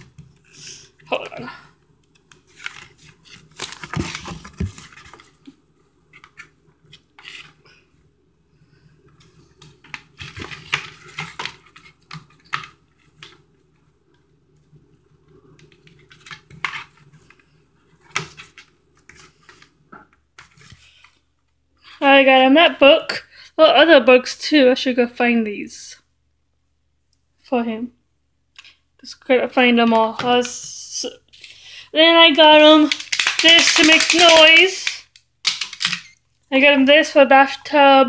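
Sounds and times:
cardboard book pages flipping: 2.0s - 7.8s, 9.1s - 13.8s, 15.5s - 21.3s.

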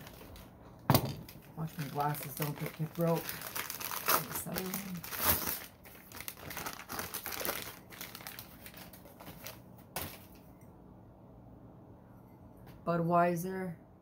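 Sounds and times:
wrapping crinkling: 0.0s - 10.5s.

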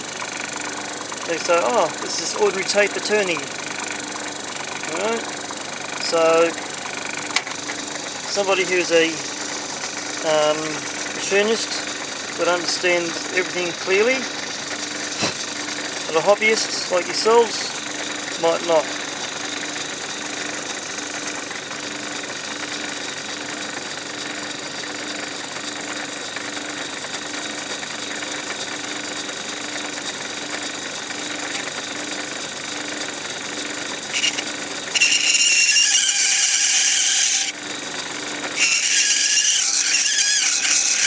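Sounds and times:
lathe running: 0.0s - 41.0s
cutting tool squealing: 0.2s - 4.0s, 4.8s - 20.2s, 31.0s - 31.8s, 33.5s - 37.6s, 38.4s - 41.0s.

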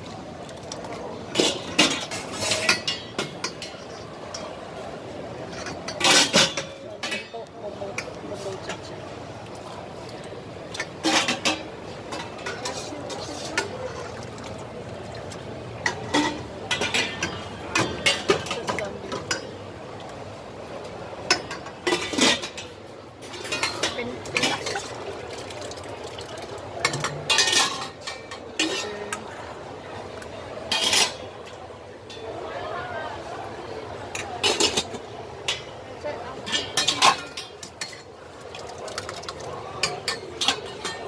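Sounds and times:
background chatter: 0.0s - 41.0s
metal ladle clinking against pots: 1.2s - 4.6s, 5.4s - 8.9s, 10.1s - 19.6s, 21.2s - 29.2s, 30.7s - 32.3s, 34.1s - 41.0s.

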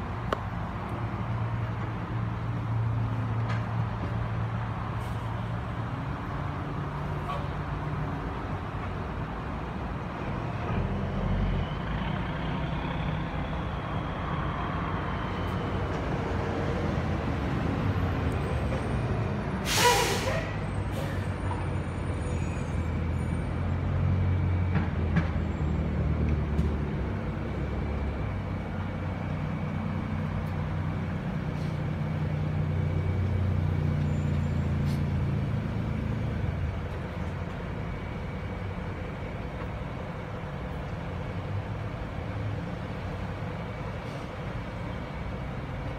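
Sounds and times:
low rumble of vehicle engines: 0.0s - 45.9s
air brakes hissing: 19.5s - 23.0s, 31.5s - 31.9s, 34.0s - 35.3s, 44.0s - 44.5s.

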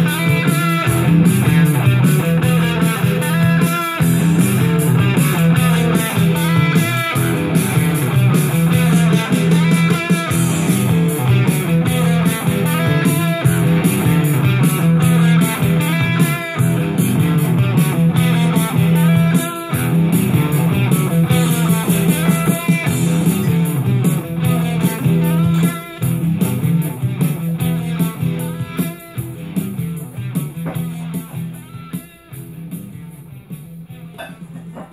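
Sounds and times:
guitar rock music: 0.0s - 34.9s.

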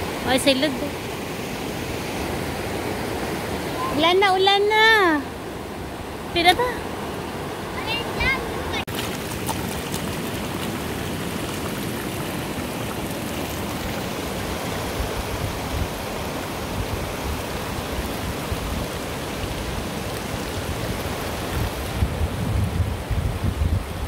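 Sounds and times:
running water: 0.0s - 24.0s
heavy rain: 7.6s - 24.0s
wind buffeting microphone: 7.9s - 24.0s.

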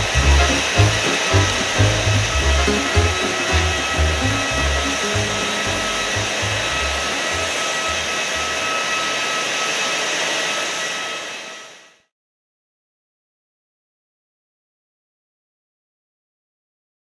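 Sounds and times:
background music with bass: 0.0s - 8.1s
jet aircraft rushing noise: 0.0s - 11.5s
high whining tones: 0.0s - 11.9s.

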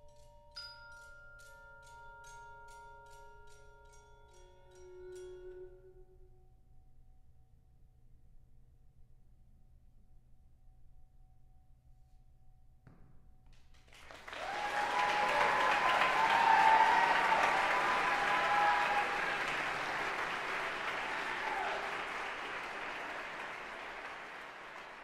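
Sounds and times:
audience applauding: 13.9s - 25.0s
shouted cheers: 14.1s - 25.0s.

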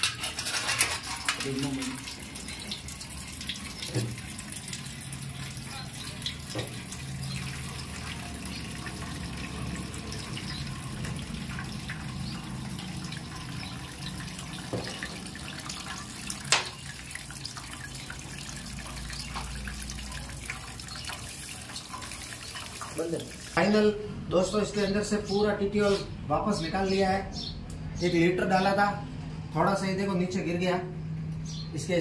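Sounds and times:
oil splashing into metal basin: 0.9s - 23.6s.

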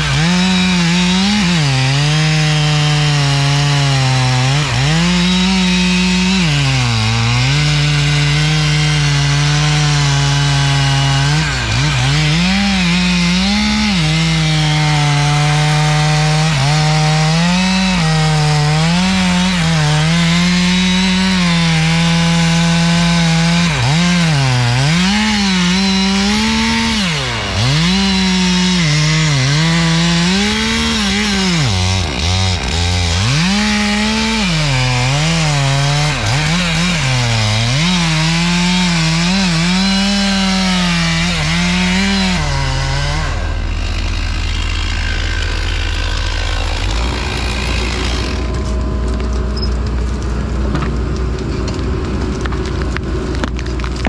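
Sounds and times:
chainsaw cutting wood: 0.0s - 54.0s
low engine rumble: 43.5s - 54.0s.

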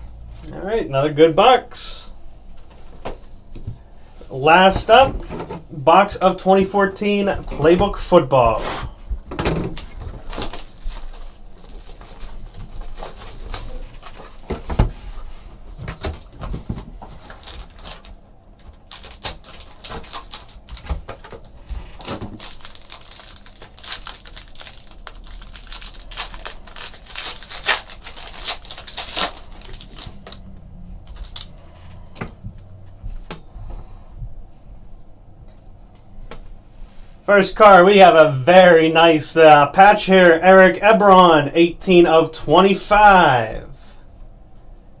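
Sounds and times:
plastic wrap crinkling: 9.6s - 14.6s, 15.2s - 31.6s.

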